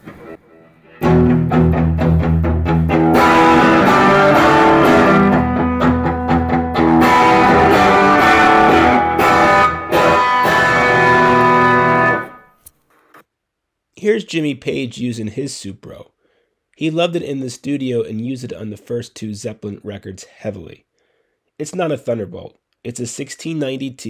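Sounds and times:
electric guitar riffing: 0.0s - 12.4s.

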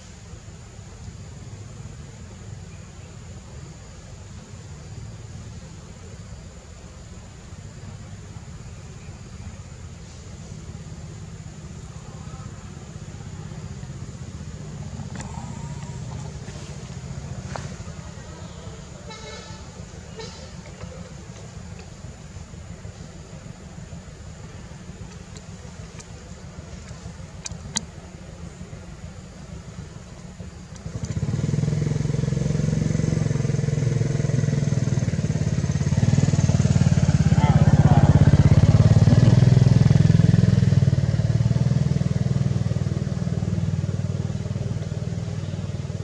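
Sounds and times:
engine running: 0.1s - 46.0s
faint clicks: 15.1s - 17.9s, 25.0s - 28.0s, 30.1s - 31.2s
small engine running: 30.3s - 46.0s.

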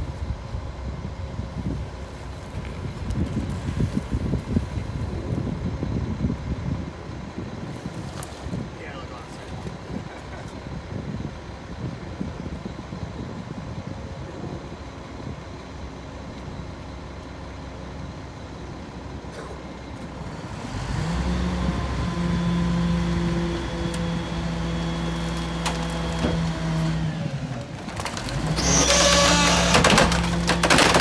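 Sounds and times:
garbage truck diesel engine: 0.0s - 31.0s
wood cracking and splintering: 25.1s - 31.0s.

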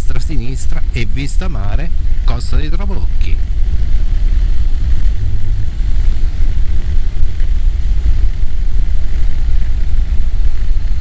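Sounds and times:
road noise: 0.0s - 11.0s
wind buffeting microphone: 0.0s - 11.0s
motorcycle engine: 2.9s - 10.1s.

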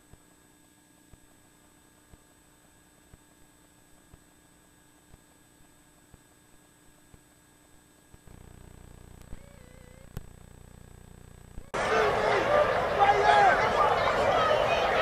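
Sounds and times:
small ticks: 0.0s - 11.7s
faint electrical hum: 0.0s - 15.0s.

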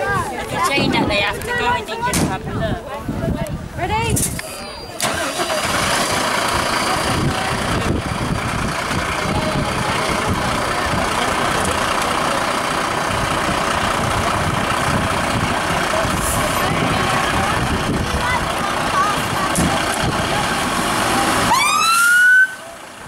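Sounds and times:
diesel engine idling: 5.0s - 23.0s.

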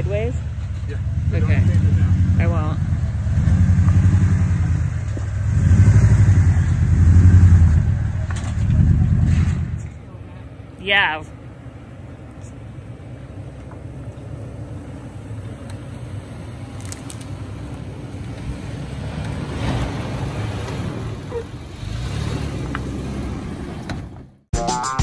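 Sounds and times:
vehicle engine rumble: 0.0s - 24.5s
tyres over dirt and rocks: 15.1s - 24.4s.

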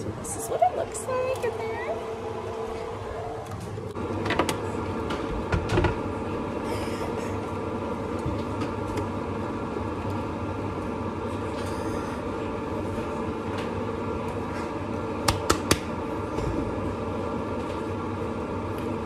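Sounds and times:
steady mechanical drone: 0.0s - 19.0s.

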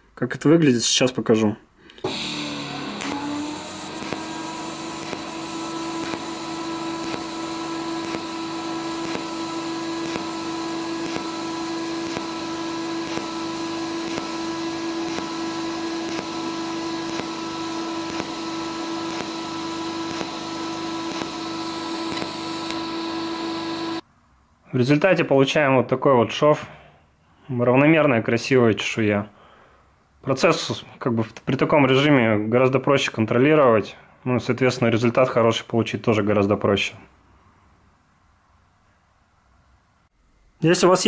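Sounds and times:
welding arc buzzing in pulses: 2.0s - 24.0s.

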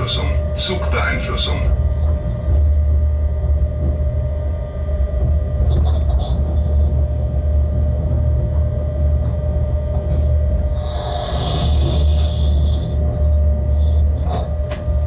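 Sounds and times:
running gear rumbling on rails: 0.0s - 15.0s
steady hum: 0.0s - 15.0s.

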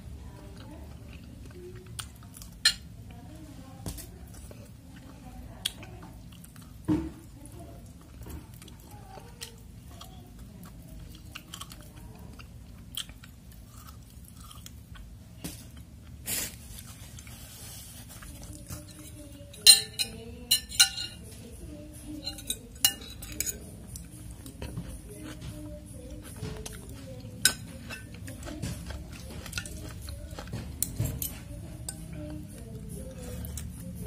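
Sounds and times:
chewing and crunching food: 0.0s - 34.0s
cutlery clinking on glass bowl: 18.8s - 21.2s, 22.2s - 23.6s.

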